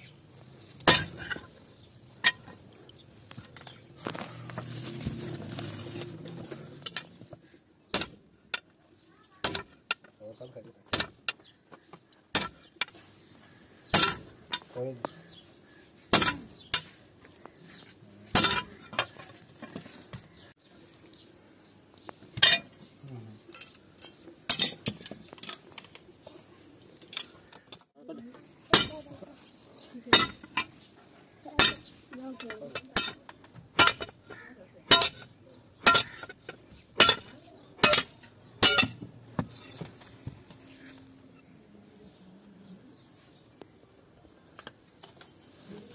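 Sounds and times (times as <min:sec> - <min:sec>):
sledgehammer striking chisel: 0:00.8 - 0:01.7, 0:07.9 - 0:08.6, 0:09.4 - 0:10.0, 0:10.9 - 0:11.5, 0:12.3 - 0:12.9, 0:13.9 - 0:14.7, 0:16.1 - 0:17.0, 0:18.3 - 0:19.1, 0:28.7 - 0:29.1, 0:30.1 - 0:30.7, 0:31.6 - 0:39.8.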